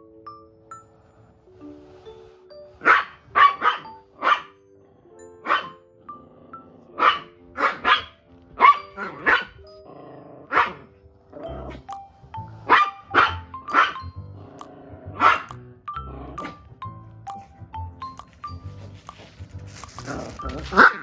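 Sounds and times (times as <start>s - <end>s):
light background music: 0.0s - 21.0s
small dog barking: 2.8s - 4.5s, 5.4s - 5.8s, 7.0s - 9.6s, 10.5s - 10.8s, 12.7s - 14.0s, 15.2s - 15.5s.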